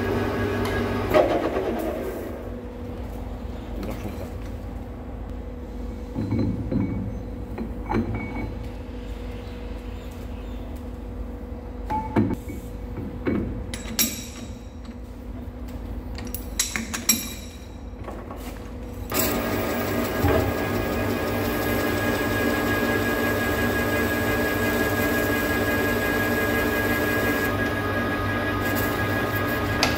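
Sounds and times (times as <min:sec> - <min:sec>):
machine hum: 0:18.8 - 0:29.9.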